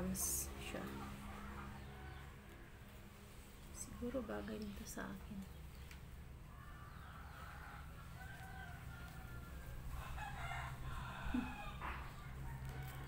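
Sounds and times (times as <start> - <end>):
rooster crowing: 6.6 - 13.0.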